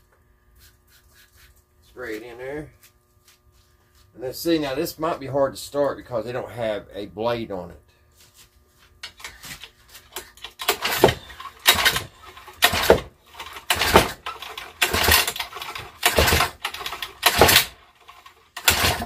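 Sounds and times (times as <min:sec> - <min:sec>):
lawnmower engine cranking: 0:10.1 - 0:19.0.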